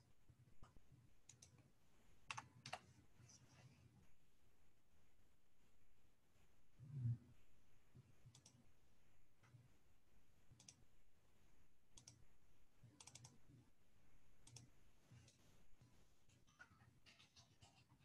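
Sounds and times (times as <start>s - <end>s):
faint keyboard clicks: 0.6s - 1.7s, 2.3s - 3.7s, 8.3s - 8.6s, 10.5s - 10.8s, 11.9s - 12.2s, 12.9s - 13.4s, 14.4s - 15.4s.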